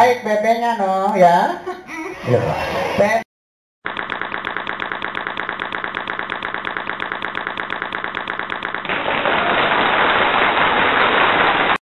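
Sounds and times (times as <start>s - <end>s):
fast even rattle: 3.9s - 8.9s.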